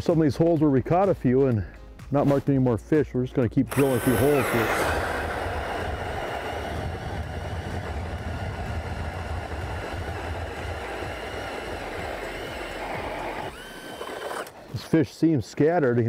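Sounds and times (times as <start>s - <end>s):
auger grinding through ice: 3.7s - 14.7s
drill motor running: 3.7s - 14.7s.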